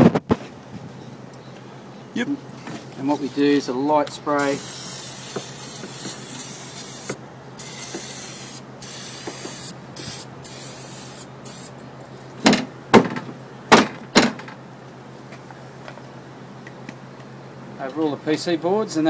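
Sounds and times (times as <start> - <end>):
aerosol spray can hissing: 4.4 - 11.7.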